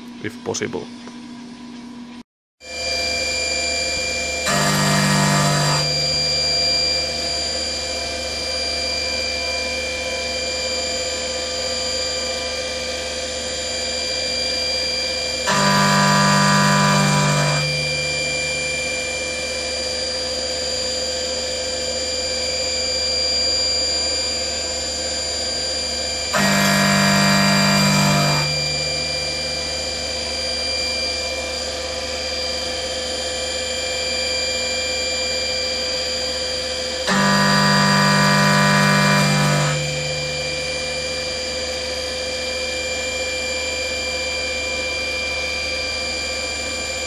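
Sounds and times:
milling machine spindle whine: 2.7 - 47.0
pitched hum of metal cutting: 2.8 - 12.6, 14.3 - 21.3, 26.2 - 32.4, 36.8 - 41.9.

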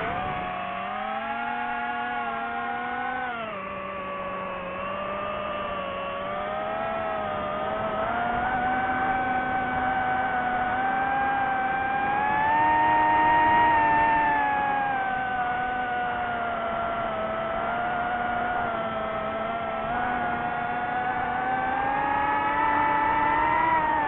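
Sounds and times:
drone propellers whining: 0.0 - 24.0.

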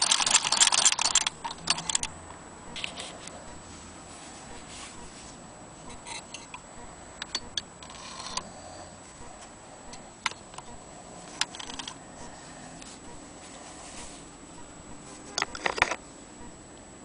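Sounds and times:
sewing machine clicks: 0.0 - 2.1.

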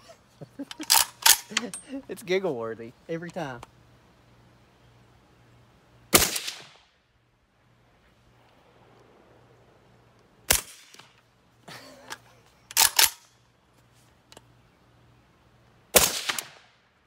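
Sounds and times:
rifle action rattling and clacking: 0.6 - 1.8, 12.1 - 13.3
suppressed rifle shot: 6.1 - 6.9, 16.0 - 16.8.

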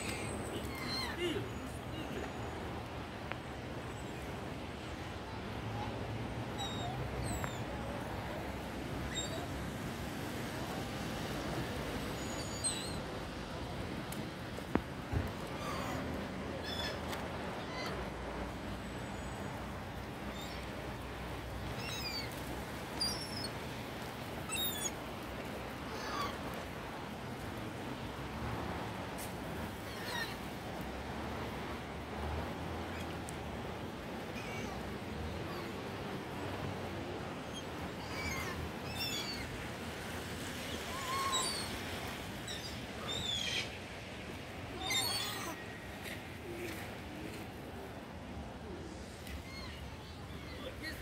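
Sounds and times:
outdoor background noise: 0.0 - 51.0
gulls calling: 40.6 - 43.8.

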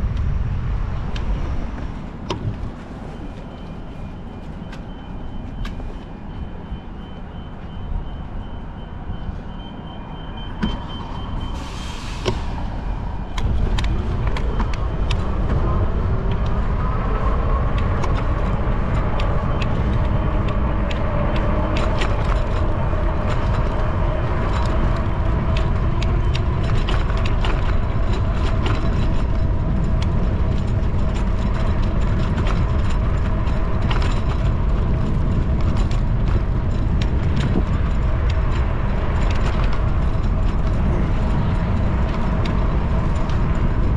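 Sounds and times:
wind and road rumble: 0.0 - 43.9
bicycle clicks and rattles: 13.2 - 43.9.

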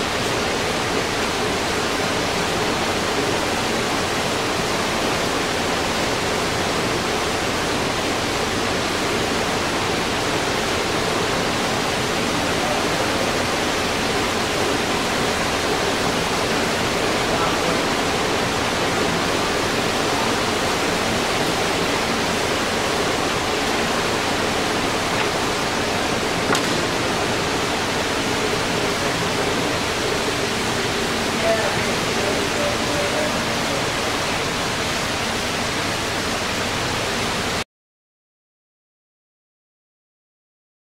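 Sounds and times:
lathe running with hum: 0.0 - 37.6
single click: 26.5 - 26.8.

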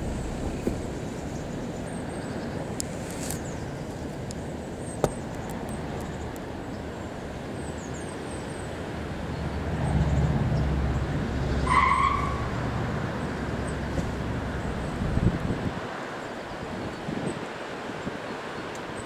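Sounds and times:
low rumble: 0.0 - 2.6
loud high squeal: 11.6 - 12.5.

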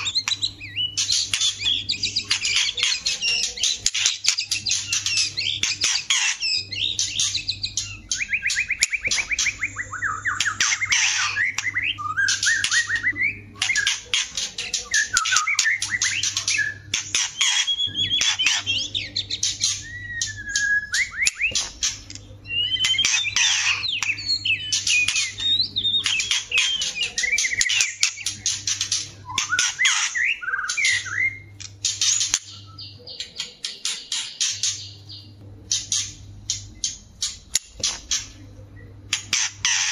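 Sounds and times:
birds singing with clicks and trills: 0.0 - 39.9.

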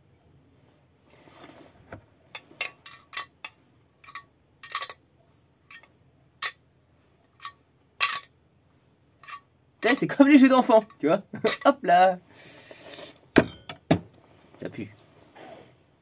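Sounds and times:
metallic clinks of engine parts: 2.4 - 5.0, 5.7 - 6.6, 9.2 - 11.8.

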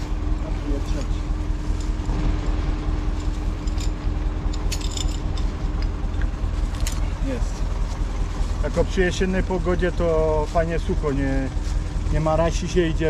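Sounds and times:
diesel engine idling: 0.0 - 13.0
chains clinking and rattling: 3.0 - 6.0, 6.6 - 7.3.

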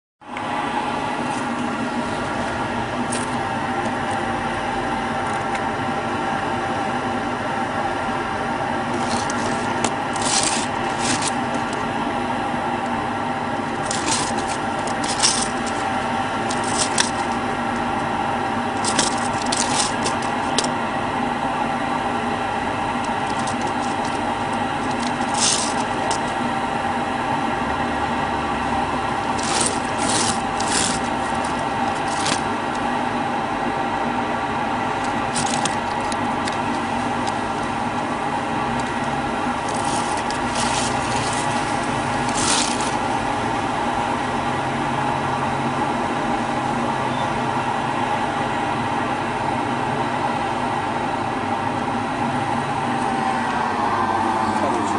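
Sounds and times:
mechanical hum: 0.2 - 54.9
short scrapes and rasps: 8.9 - 11.8, 13.7 - 17.4, 18.8 - 20.7, 23.0 - 26.4, 29.2 - 32.8, 35.0 - 37.7, 38.8 - 43.2.

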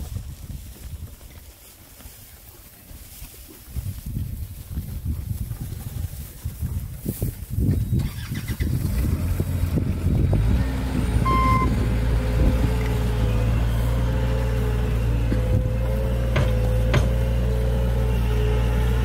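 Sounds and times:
vehicle engine humming: 7.5 - 19.0
short beep: 11.2 - 11.8
knocking and handling noises: 16.3 - 17.3.

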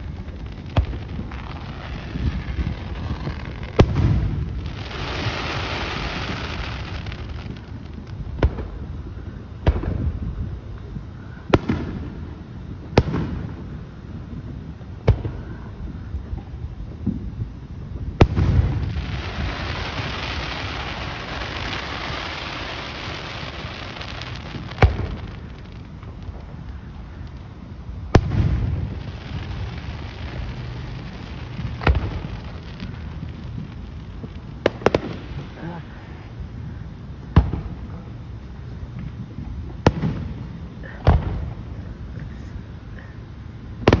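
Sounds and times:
firework stars crackling: 0.0 - 44.0
sharp firework bang: 0.7 - 4.6, 18.2 - 19.8, 24.5 - 25.4, 28.1 - 29.0.

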